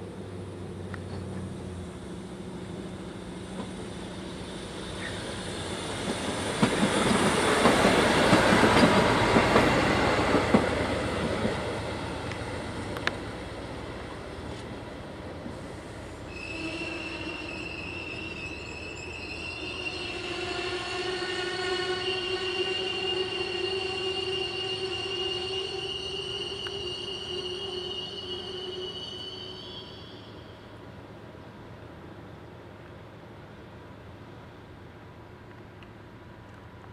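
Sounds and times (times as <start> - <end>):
train wheels running on rails: 0.7 - 19.9
high-pitched wheel squeal: 16.3 - 30.8.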